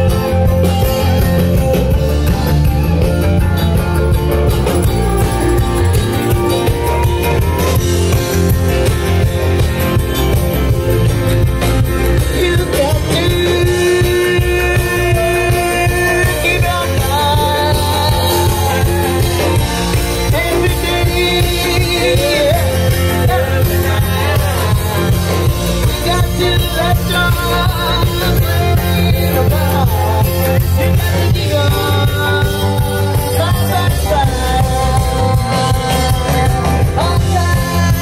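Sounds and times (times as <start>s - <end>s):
band playing upbeat guitar music: 0.0s - 38.0s
person singing: 12.0s - 38.0s.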